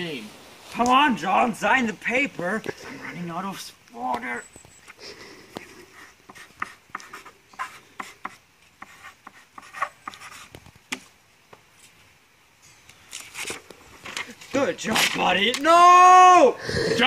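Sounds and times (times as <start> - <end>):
pen scratching on paper: 5.9 - 10.5
soft paper rustles: 12.7 - 15.7.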